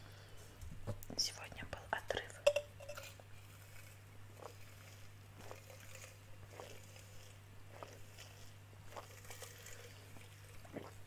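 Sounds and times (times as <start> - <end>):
steady low hum: 0.0 - 11.0
drinking through a straw: 2.5 - 11.0
swallowing gulps: 4.3 - 11.0.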